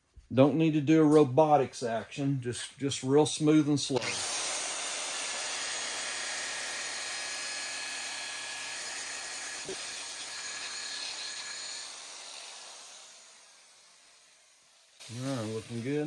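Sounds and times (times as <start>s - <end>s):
rotary polisher whirring: 4.0s - 15.9s.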